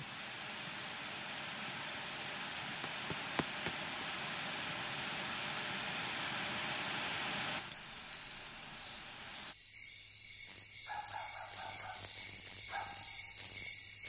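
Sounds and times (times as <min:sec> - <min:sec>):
television static hiss: 0:00.0 - 0:07.8
metal wind chime ringing: 0:07.6 - 0:09.6
soft night chirping: 0:07.7 - 0:14.0.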